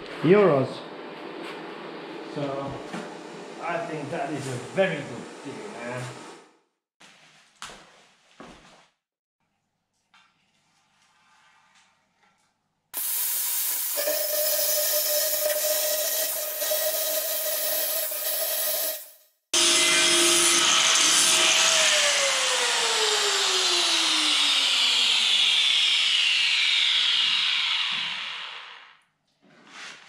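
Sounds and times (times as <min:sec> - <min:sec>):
plasma cutter hissing: 0:13.0 - 0:19.2
whirring descending in pitch: 0:19.6 - 0:29.0.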